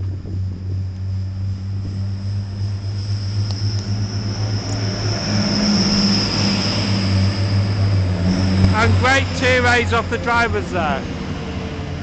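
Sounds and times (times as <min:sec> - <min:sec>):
high steady whine: 0:00.0 - 0:11.0
diesel train engines droning: 0:00.0 - 0:12.0.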